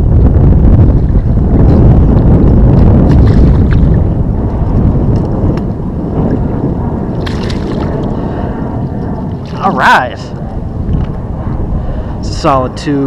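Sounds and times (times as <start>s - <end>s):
wind noise on microphone: 0.0s - 13.0s
fish splashing in shallow water: 7.2s - 7.9s.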